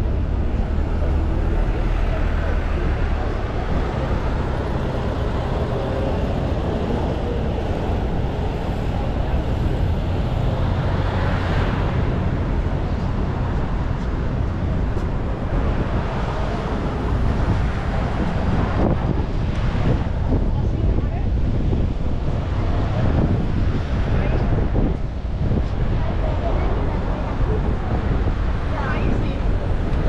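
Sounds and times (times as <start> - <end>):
road traffic noise: 0.0 - 30.0.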